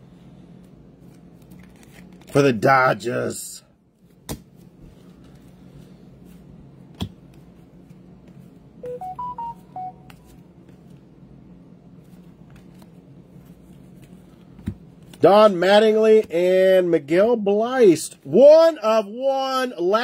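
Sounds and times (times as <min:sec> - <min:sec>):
steady low hum: 0:00.0 - 0:19.9
electronic notification chime beeps: 0:08.8 - 0:10.1.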